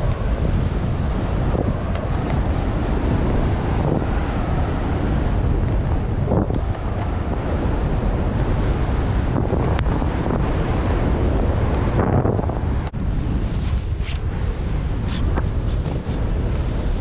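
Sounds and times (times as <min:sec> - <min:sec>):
wind buffeting microphone: 0:00.0 - 0:17.0
skis hissing through snow: 0:02.4 - 0:04.4, 0:13.3 - 0:17.0.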